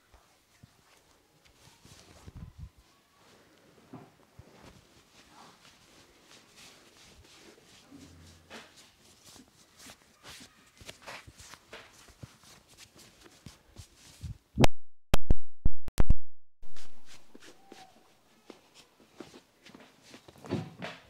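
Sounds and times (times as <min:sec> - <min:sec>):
hands rubbing over cloth: 0:04.4 - 0:14.4, 0:16.6 - 0:18.9.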